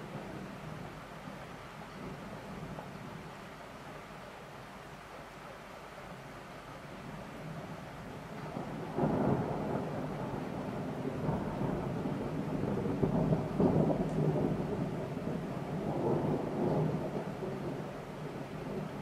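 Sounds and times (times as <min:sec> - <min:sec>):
steady rain: 0:00.0 - 0:19.0
thunder rolling: 0:08.5 - 0:17.9.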